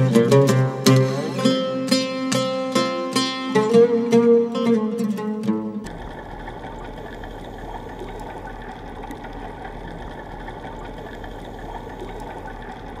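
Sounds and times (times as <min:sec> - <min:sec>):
muffled underwater noise: 0:00.0 - 0:02.0, 0:05.9 - 0:13.0
faint clicks: 0:05.8 - 0:13.0.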